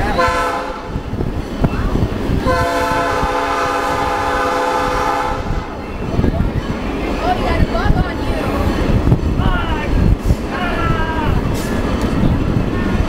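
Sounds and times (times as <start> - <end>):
low rumble of train on rails: 0.0 - 13.0
locomotive horn blasts: 0.1 - 1.0, 2.5 - 5.7.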